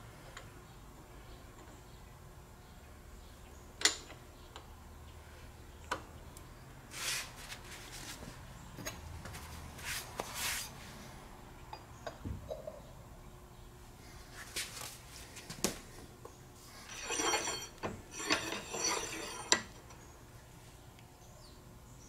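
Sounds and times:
short scuffing sounds: 9.2s - 10.7s, 14.4s - 15.9s.

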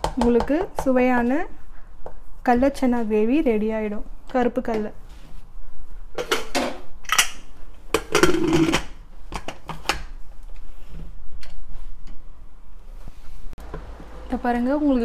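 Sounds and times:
metal lid clanking: 6.2s - 7.4s.

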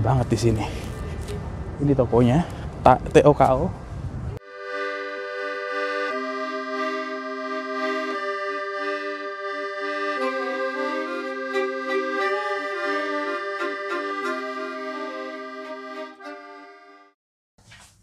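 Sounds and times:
quick melodic notes: 4.4s - 17.1s
reedy held chords: 4.4s - 17.1s.

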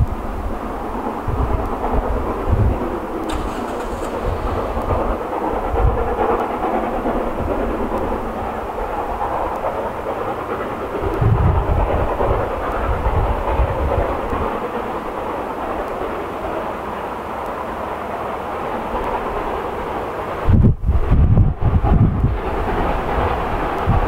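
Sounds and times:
steam train rumbling: 0.0s - 24.0s.

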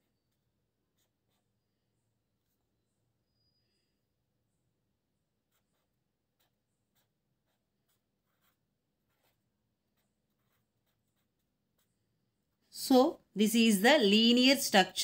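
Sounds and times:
pen scratching on paper: 0.0s - 4.0s, 4.8s - 12.7s.

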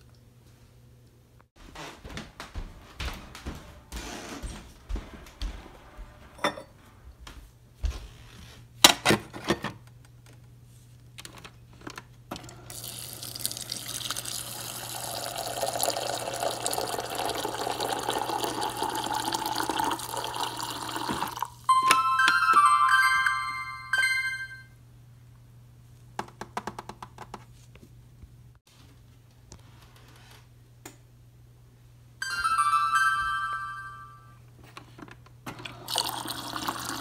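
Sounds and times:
water pouring into a mug: 12.7s - 21.6s, 35.8s - 37.0s
chiming music: 21.7s - 24.8s, 32.2s - 34.4s.

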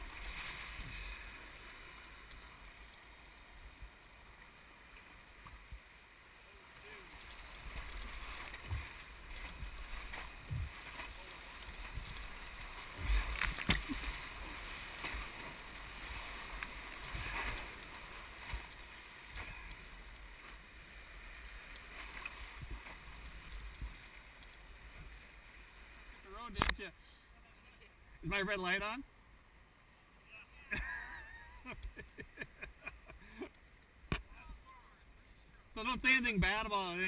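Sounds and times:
water splashing: 0.0s - 26.8s.

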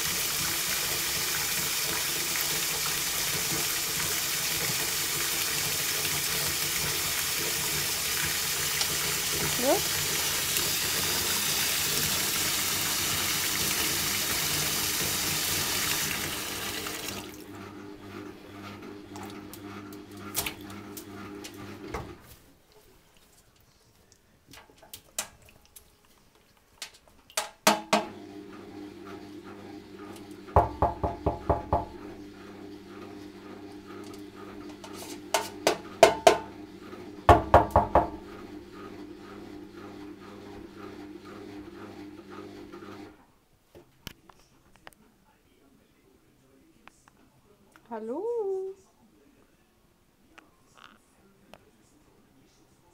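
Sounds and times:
tap running into steel sink: 30.5s - 32.0s, 34.0s - 36.5s, 37.3s - 38.2s.

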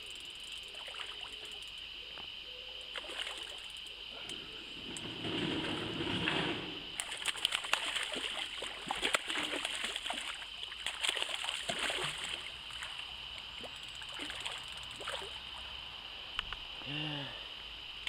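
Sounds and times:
fish splashing at the surface: 0.7s - 1.4s, 2.9s - 3.6s, 7.0s - 15.4s.

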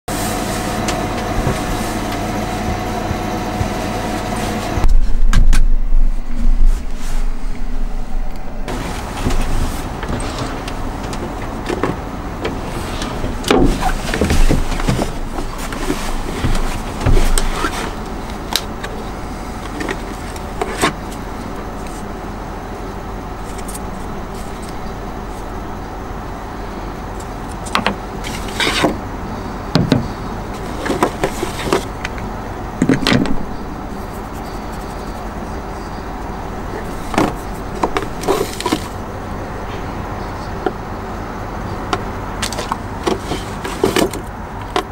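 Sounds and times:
low background rumble: 0.1s - 44.9s
crinkling and rustling packaging: 36.7s - 39.0s.

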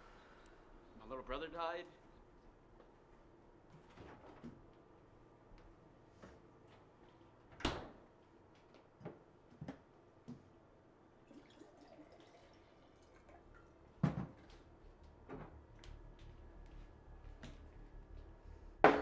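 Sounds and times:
water pouring into a glass: 11.2s - 13.8s.

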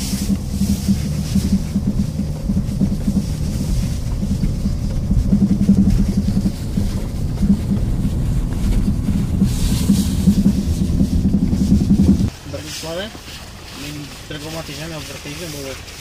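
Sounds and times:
diesel engine and tyres rumbling: 0.0s - 16.0s.

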